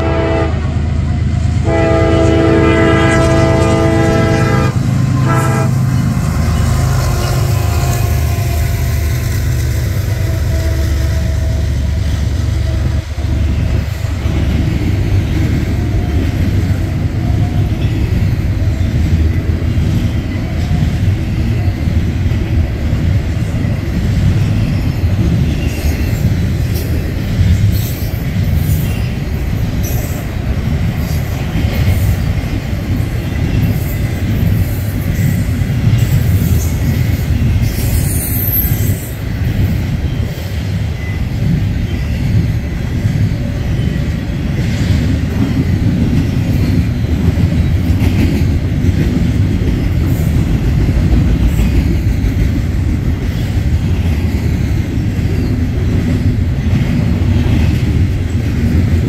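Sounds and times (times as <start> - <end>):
locomotive horn blast: 0.0 - 0.8, 1.6 - 9.3
train passing rumble: 0.0 - 59.0.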